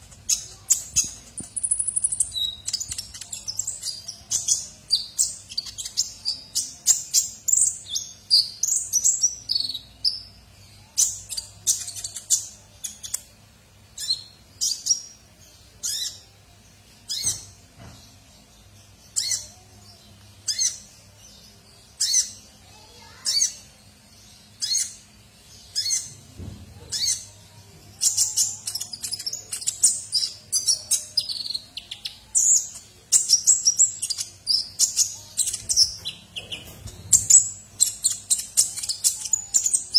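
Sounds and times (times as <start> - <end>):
sunbird twittering song: 13.9 - 39.9
bird chirps: 17.0 - 39.9.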